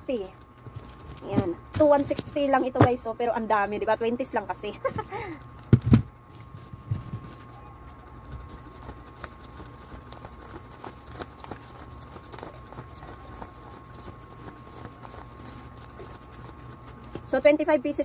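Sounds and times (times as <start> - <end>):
faint steady hum: 0.0 - 18.0
banknotes counted by hand: 8.4 - 17.6.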